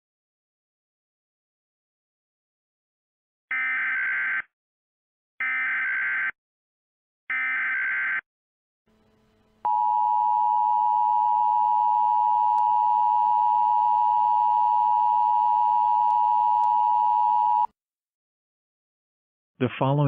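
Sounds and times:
two-tone alarm signal: 0:03.5 - 0:04.5, 0:05.4 - 0:06.3, 0:07.3 - 0:08.2, 0:09.6 - 0:17.7.

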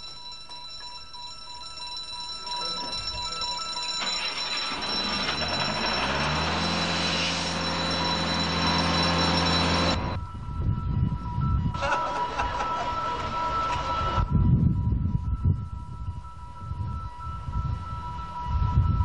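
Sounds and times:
small petrol engine running: 0:04.0 - 0:10.2
rising hiss: 0:05.8 - 0:07.8.

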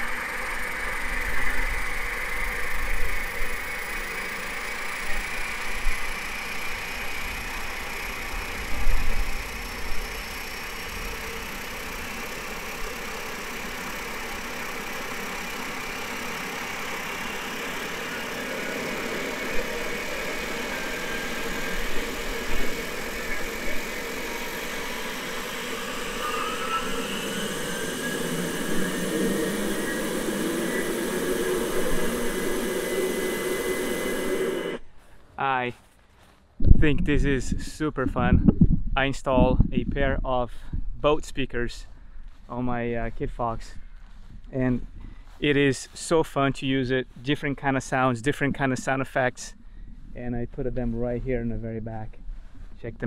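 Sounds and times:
jet engine whine through speakers: 0:00.0 - 0:35.0, 0:36.6 - 0:53.0.

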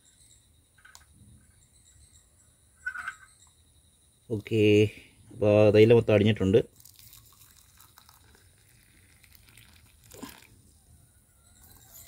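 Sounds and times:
tea trickling into cup: 0:06.6 - 0:10.7.

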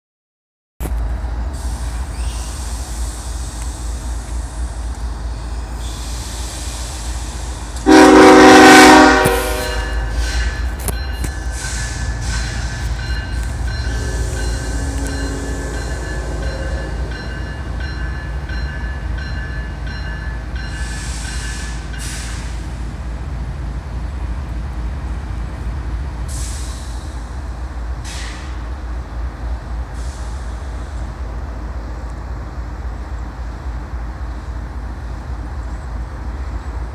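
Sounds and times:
locomotive air horn blast: 0:07.8 - 0:10.5, 0:13.9 - 0:17.1.

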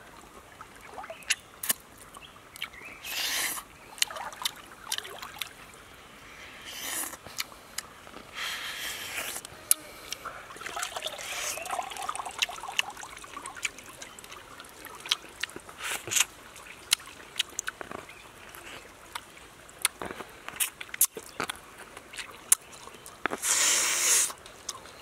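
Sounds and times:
sucking and slurping: 0:01.2 - 0:24.9
chewing with smacking clicks: 0:16.9 - 0:23.4.

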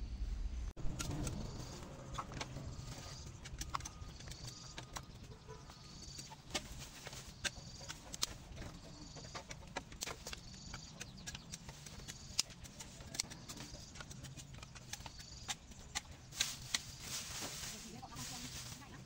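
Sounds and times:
dry sticks clicking: 0:01.0 - 0:17.2
dry leaves crackling: 0:15.7 - 0:19.0.

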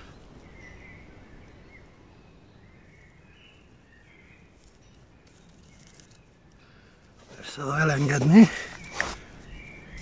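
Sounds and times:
dry reed tinder rustling: 0:02.9 - 0:10.0.

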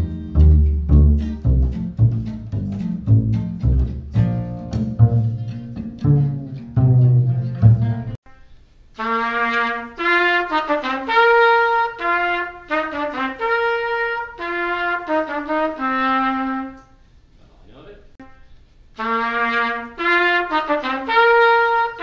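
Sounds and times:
double bass: 0:00.0 - 0:08.2
guitar: 0:00.0 - 0:08.2
solo trumpet melody: 0:08.3 - 0:17.0, 0:18.2 - 0:22.0.

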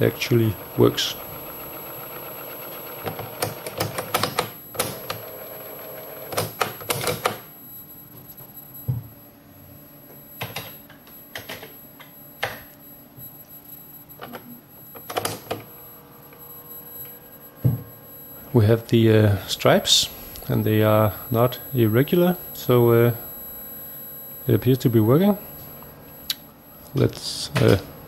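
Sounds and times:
cassette motor rewinding: 0:00.0 - 0:07.6
datasette clicks: 0:10.1 - 0:19.0.

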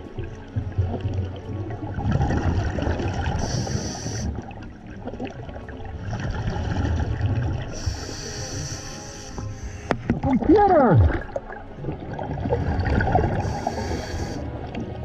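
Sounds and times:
exhaled bubbles underwater: 0:00.0 - 0:15.0
regulator inhalation hiss: 0:03.4 - 0:04.4, 0:07.7 - 0:10.0, 0:13.4 - 0:14.5.

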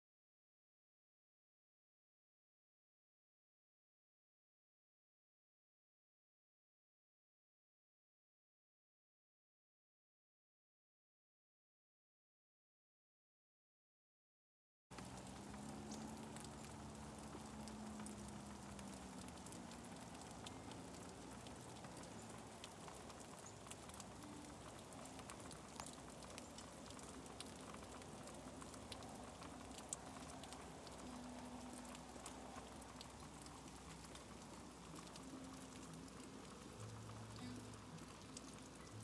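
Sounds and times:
freezing rain pattering: 0:14.9 - 0:39.0.

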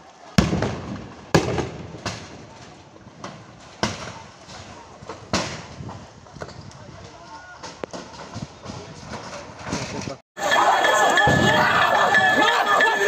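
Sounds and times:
explosive bangs: 0:00.4 - 0:06.2.

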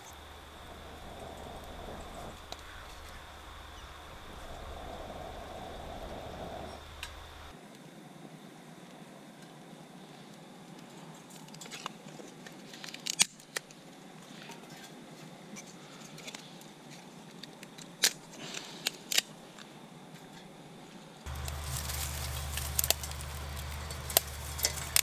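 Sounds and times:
steady low hum: 0:00.0 - 0:07.6, 0:21.3 - 0:25.0
small wood fire crackling: 0:00.0 - 0:07.8, 0:21.2 - 0:25.0
dry timber cracking: 0:21.3 - 0:25.0.

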